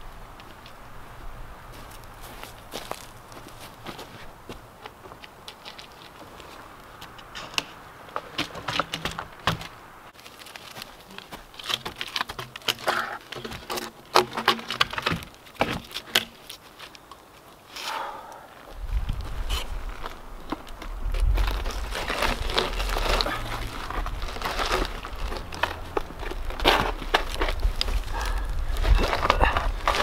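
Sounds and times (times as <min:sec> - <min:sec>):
footsteps on dry twigs and leaves: 0:00.0 - 0:30.0.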